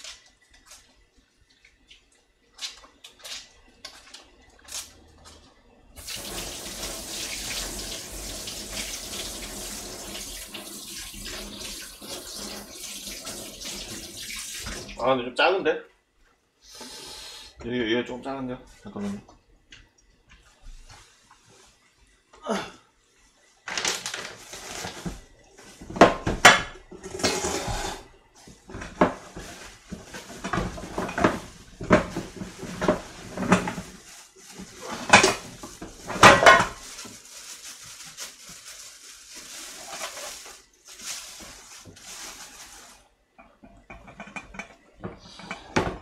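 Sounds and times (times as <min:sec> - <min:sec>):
metal pots and pans clattering: 0:25.9 - 0:28.1, 0:28.7 - 0:34.0, 0:34.7 - 0:37.0, 0:43.4 - 0:46.0.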